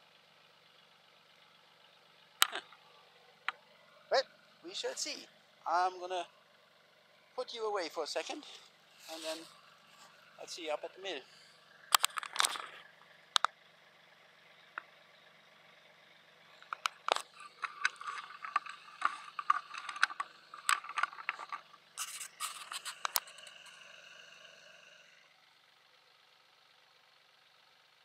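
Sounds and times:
tractor engine running: 0:00.0 - 0:28.0
log scraping over leaves: 0:08.4 - 0:10.2.

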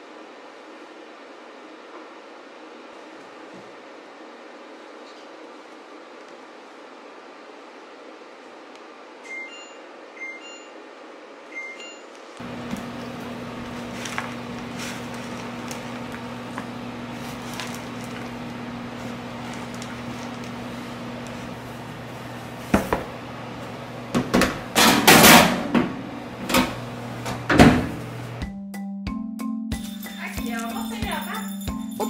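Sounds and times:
oven humming: 0:10.4 - 0:28.5
loud scraping rustle: 0:13.7 - 0:16.0.

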